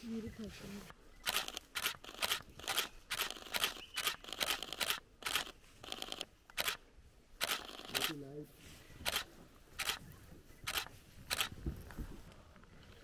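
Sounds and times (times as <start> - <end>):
camera shutters clicking: 1.2 - 6.8, 7.4 - 8.2, 9.0 - 10.0, 10.7 - 11.5.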